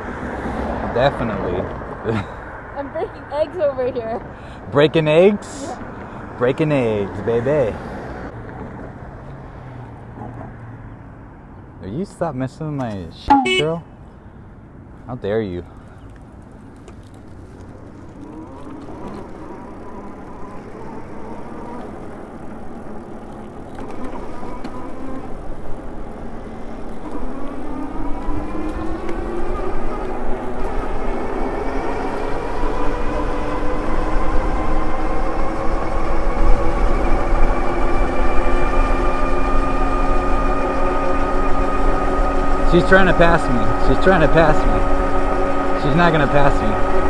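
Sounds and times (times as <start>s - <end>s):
electric motor whining: 26.9s - 47.0s.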